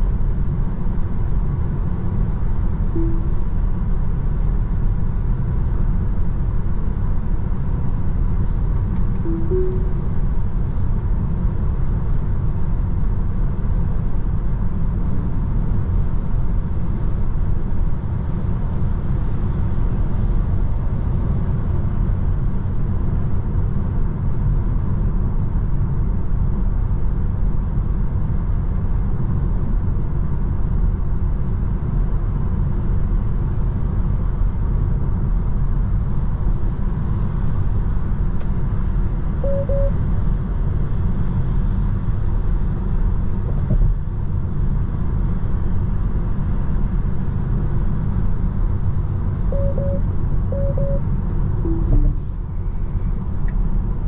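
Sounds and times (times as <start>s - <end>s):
road and tyre rumble in car cabin: 0.0s - 54.0s
two-note beep: 3.0s - 3.7s, 9.2s - 10.3s, 39.4s - 40.0s, 49.5s - 52.2s.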